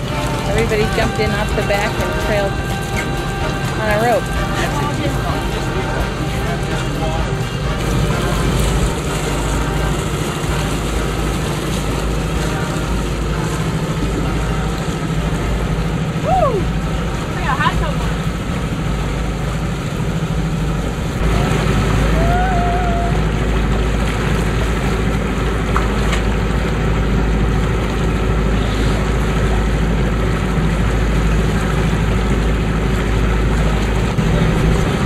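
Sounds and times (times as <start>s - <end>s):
boat engine droning: 0.0s - 35.0s
water rushing along hull: 0.0s - 35.0s
wind buffeting microphone: 13.1s - 35.0s.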